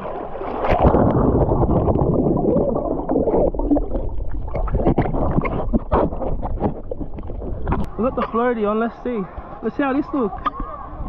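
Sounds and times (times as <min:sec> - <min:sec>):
muffled water sloshing and splashing: 0:00.0 - 0:08.7
water gurgling: 0:00.0 - 0:11.0.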